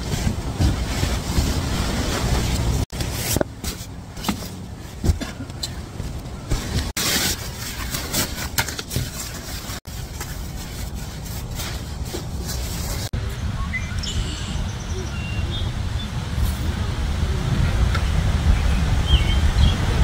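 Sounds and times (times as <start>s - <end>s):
sleeping bag rustling: 0.0s - 13.1s
low wind rumble: 9.0s - 20.0s.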